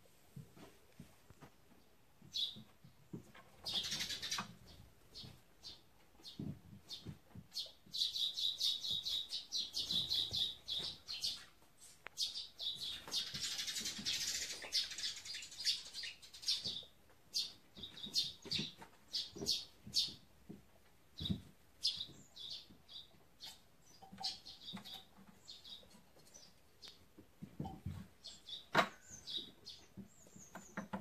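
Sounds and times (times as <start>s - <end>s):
small birds chirping: 1.3s - 31.0s.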